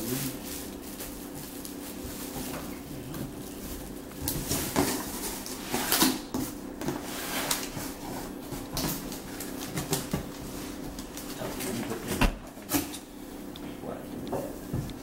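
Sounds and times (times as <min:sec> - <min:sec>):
plastic wrap crinkling: 0:00.0 - 0:06.5.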